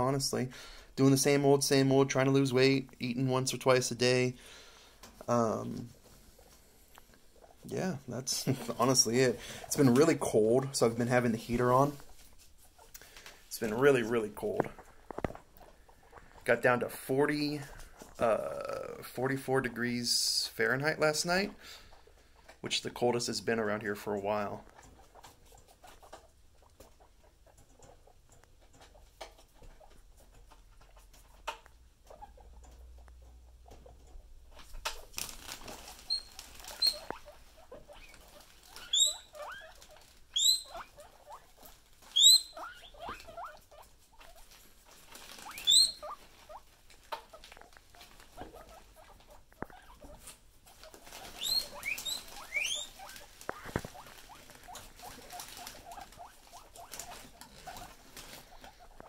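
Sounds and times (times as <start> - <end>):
animals rustling on bedding: 4.9 - 20.4, 34.5 - 59.0
guinea pigs squealing: 7.2 - 14.7, 15.5 - 59.0.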